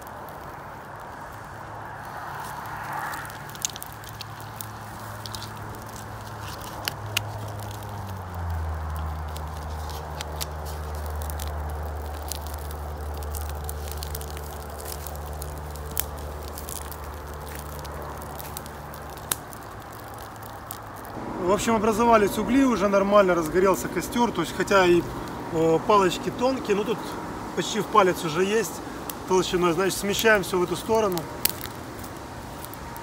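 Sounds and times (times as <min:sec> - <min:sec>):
kindling fire crackling: 0:00.0 - 0:33.0
low steady hum: 0:03.7 - 0:27.6.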